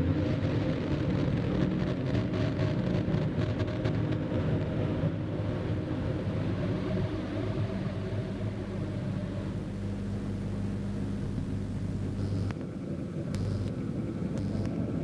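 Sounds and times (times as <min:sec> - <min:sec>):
low electronic drone: 0:00.0 - 0:15.0.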